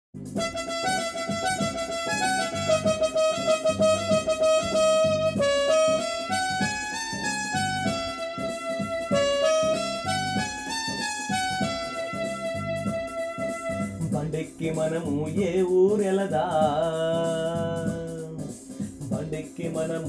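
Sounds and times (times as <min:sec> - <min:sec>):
steady low beat: 0:00.2 - 0:20.0
electronic keyboard melody: 0:00.3 - 0:15.4.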